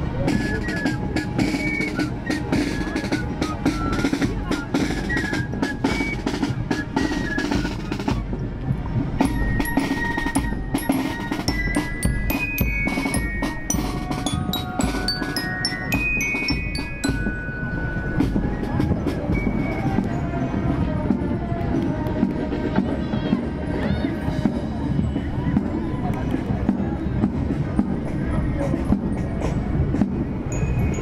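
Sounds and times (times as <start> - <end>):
flute melody: 0.0 - 27.0
snare drum rolls: 0.1 - 20.2
bell lyre notes: 9.3 - 18.5.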